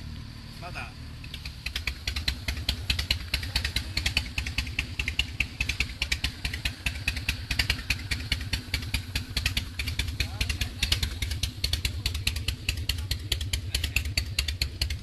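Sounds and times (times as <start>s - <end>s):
motorcycle engine idling: 0.0s - 15.0s
sharp mechanical clattering ticks: 1.2s - 15.0s.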